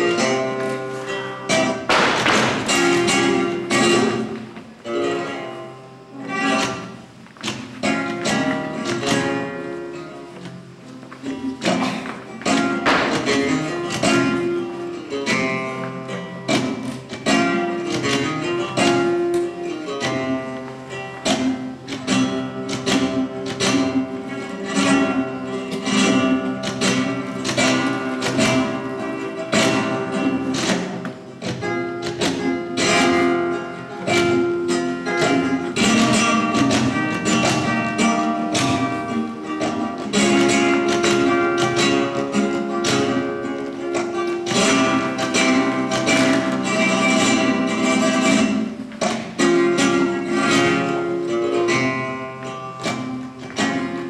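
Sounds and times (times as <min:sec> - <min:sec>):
flamenco guitar music: 0:00.0 - 0:54.0.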